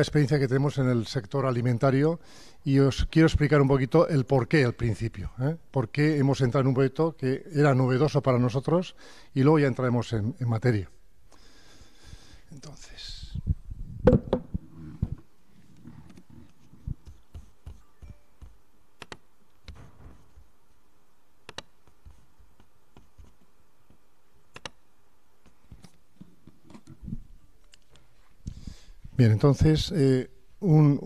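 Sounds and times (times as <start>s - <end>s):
laptop keys clicking: 16.1s - 20.5s, 21.4s - 24.8s.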